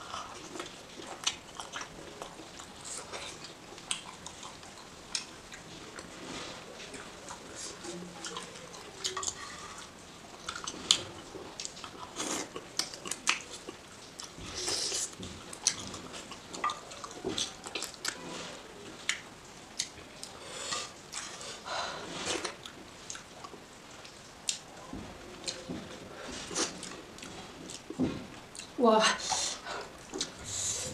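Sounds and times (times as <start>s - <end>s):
wet chewing and lip-smacking: 0.1s - 6.1s, 10.4s - 18.2s, 19.0s - 20.4s.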